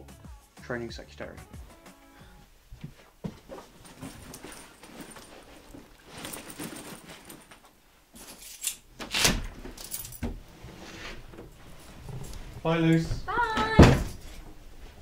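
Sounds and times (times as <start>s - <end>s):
backpack fabric and straps rustling: 2.6s - 13.5s
light jingling: 3.4s - 8.8s, 9.8s - 10.4s.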